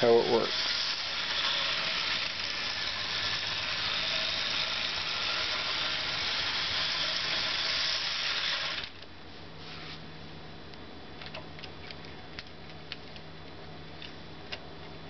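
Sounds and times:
model train whirring on track: 0:00.0 - 0:09.0.

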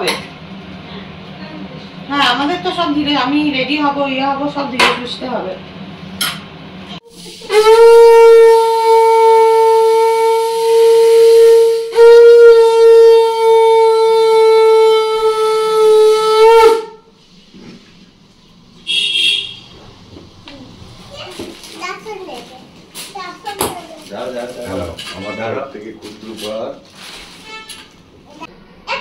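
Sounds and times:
conch shell blasts: 0:07.4 - 0:17.2, 0:18.8 - 0:19.7.

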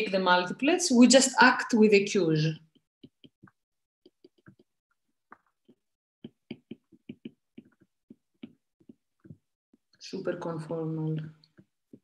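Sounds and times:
stylus tapping on tablet screen: 0:02.6 - 0:12.0.

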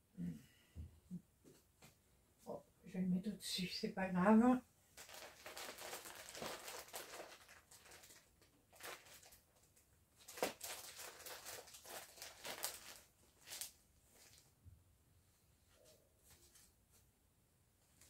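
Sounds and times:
plastic wrap rustling and crinkling: 0:05.0 - 0:14.6.

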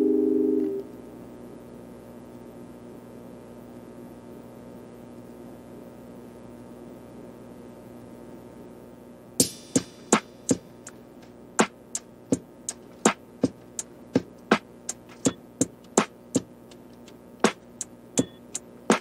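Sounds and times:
sparse clicking beat: 0:09.4 - 0:19.0.

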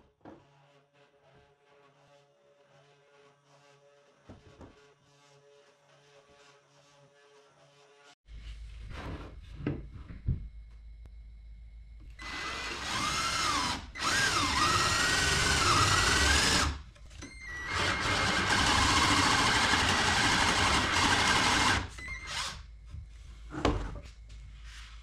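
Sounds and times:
cordless drill drilling into wood: 0:12.2 - 0:16.8, 0:17.4 - 0:22.6.

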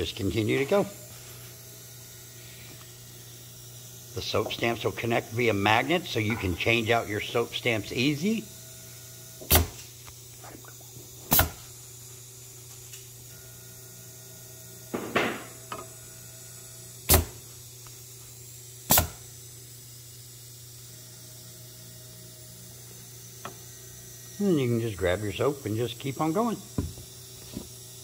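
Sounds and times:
conveyor motor hum: 0:00.0 - 0:28.0
pneumatic cylinder strokes: 0:10.5 - 0:11.8, 0:18.9 - 0:19.3.

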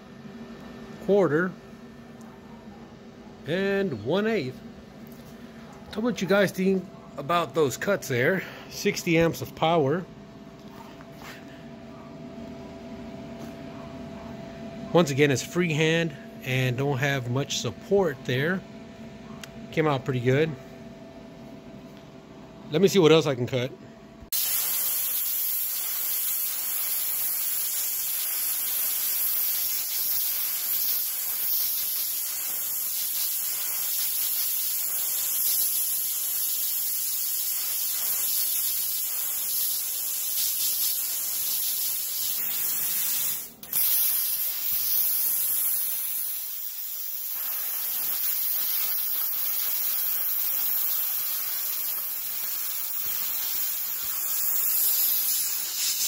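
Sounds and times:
plasma cutter hissing: 0:24.3 - 0:56.0.

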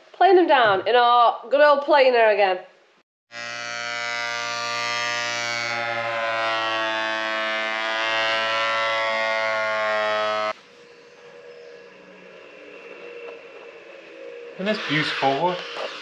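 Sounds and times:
planer-thicknesser whining: 0:03.4 - 0:10.6.

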